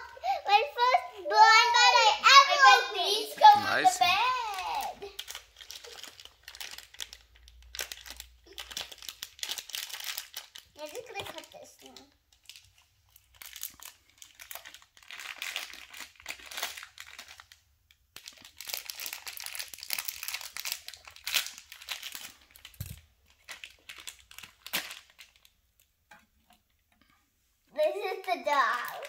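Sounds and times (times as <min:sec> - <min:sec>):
plastic packets crinkling: 0:03.5 - 0:26.6, 0:28.1 - 0:29.0.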